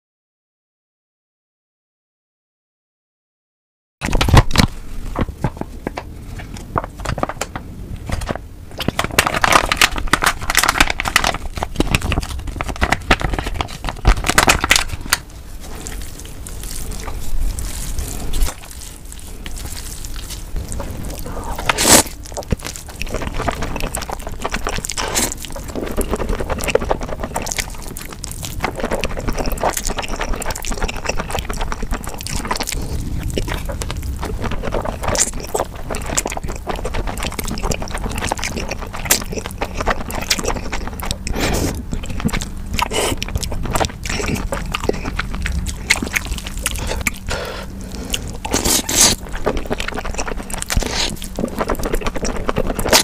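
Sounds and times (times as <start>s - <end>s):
sauce squelching from a packet: 8.8s - 53.0s
noodles slurped: 9.3s - 53.0s
chopsticks stirring sticky noodles: 15.3s - 32.7s.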